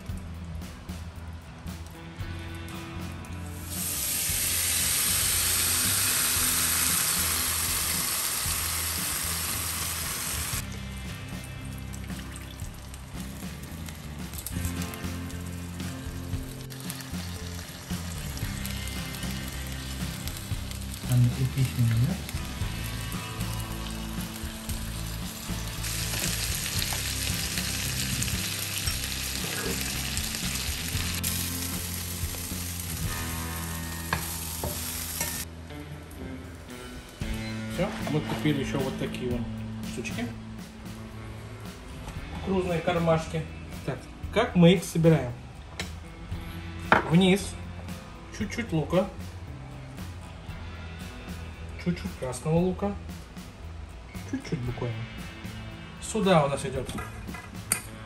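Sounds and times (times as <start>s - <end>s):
background music: 0.0s - 58.0s
tortilla sizzling in a pan: 3.6s - 10.6s, 12.6s - 35.4s.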